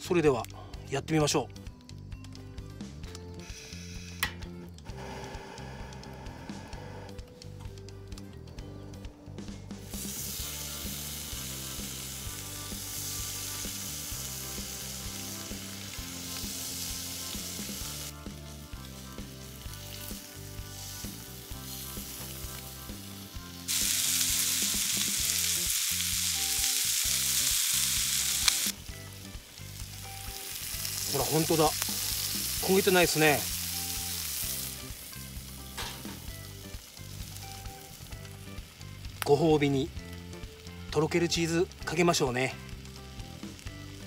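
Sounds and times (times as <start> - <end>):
background music: 0.0 - 44.0
scallops sizzling in a pan: 9.8 - 44.0.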